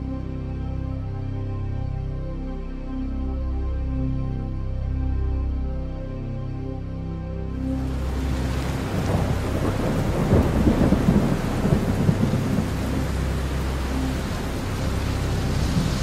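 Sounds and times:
rain hissing: 0:07.8 - 0:16.0
thunder rumbling: 0:07.9 - 0:16.0.

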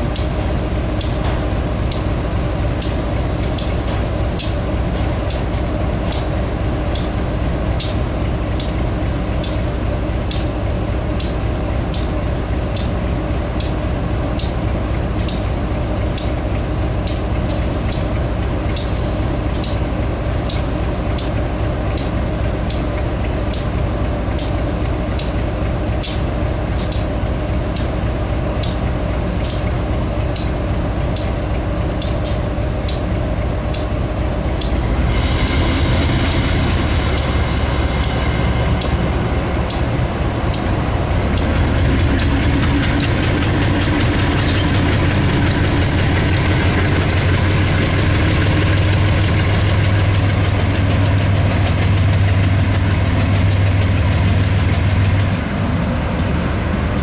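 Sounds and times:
diesel locomotive engine running: 0:00.0 - 0:57.0
sharp high clicking: 0:34.6 - 0:47.2.

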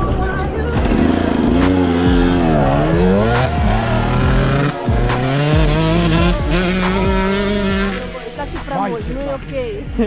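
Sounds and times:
dirt bike engine revving: 0:00.6 - 0:08.8.

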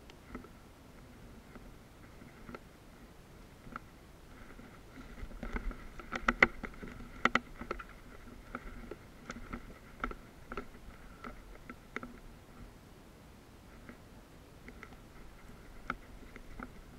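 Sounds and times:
gear clicks and knocks: 0:00.1 - 0:02.7, 0:03.6 - 0:12.7, 0:14.6 - 0:16.9.

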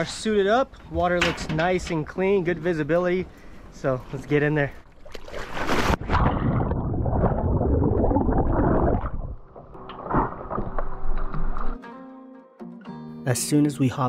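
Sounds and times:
water lapping and splashing: 0:03.2 - 0:11.8
underwater rushing and bubbling: 0:04.8 - 0:11.8
sharp splash into water: 0:05.0 - 0:06.6.

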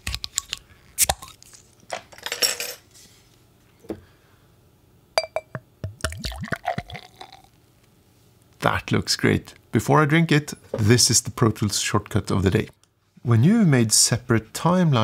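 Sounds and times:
glass clinking: 0:05.2 - 0:05.6
beer glugging into glass: 0:05.2 - 0:07.5.

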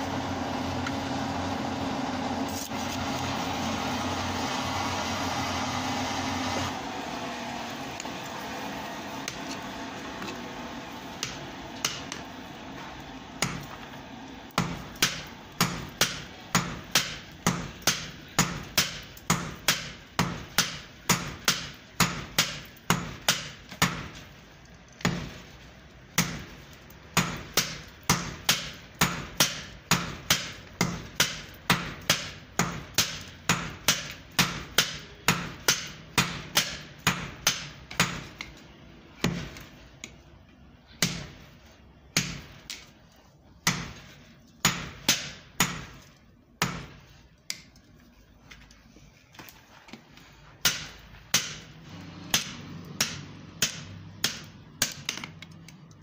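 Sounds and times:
forge air blower humming: 0:00.0 - 0:24.0, 0:49.7 - 0:54.4
hammer pounding steel on anvil: 0:11.2 - 0:12.3, 0:13.4 - 0:13.8, 0:14.5 - 0:24.2, 0:25.0 - 0:25.4, 0:26.2 - 0:38.6, 0:39.2 - 0:39.7, 0:40.9 - 0:41.5, 0:42.1 - 0:42.9, 0:43.6 - 0:46.0, 0:46.6 - 0:47.0, 0:50.6 - 0:55.2.

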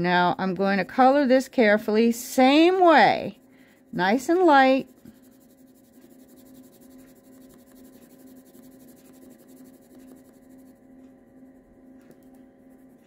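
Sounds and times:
pencil scratching on card: 0:02.4 - 0:10.8.

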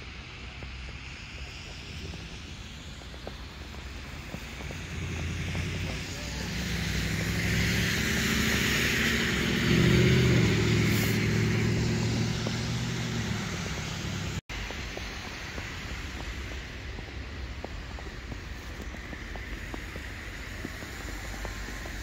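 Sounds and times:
vehicle passing: 0:03.9 - 0:14.4.

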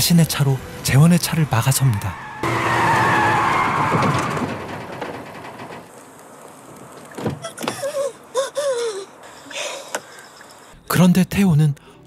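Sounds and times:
car tyres screeching: 0:00.3 - 0:08.3.

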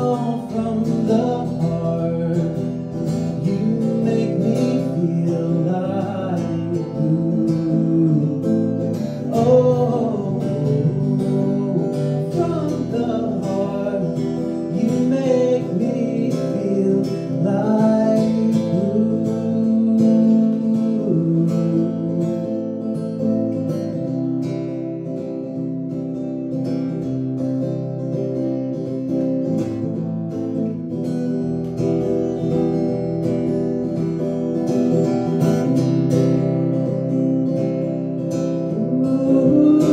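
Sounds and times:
man singing: 0:00.0 - 0:24.2, 0:36.8 - 0:39.9
acoustic guitar strumming: 0:00.0 - 0:39.9.

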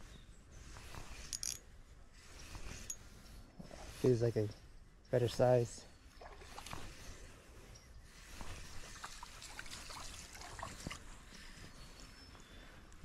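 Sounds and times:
water trickling and splashing: 0:06.1 - 0:07.1, 0:08.2 - 0:11.3.

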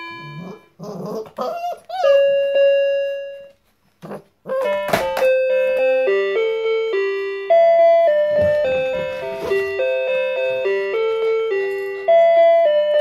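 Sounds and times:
toy keyboard tones: 0:04.5 - 0:13.0.

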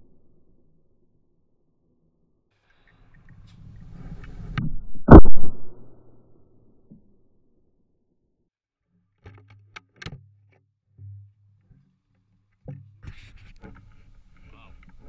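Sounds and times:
rustling noise: 0:02.6 - 0:04.7
shotgun handling clicks and knocks: 0:09.2 - 0:11.2.

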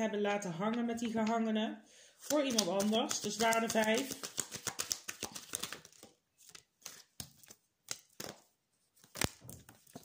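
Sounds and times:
cards clicking and tapping: 0:02.2 - 0:10.0.

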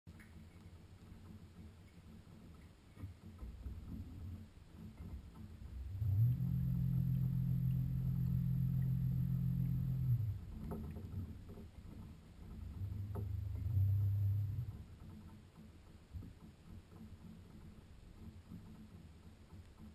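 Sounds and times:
faint clicks: 0:00.1 - 0:19.9
small motor humming underwater: 0:03.2 - 0:18.6.

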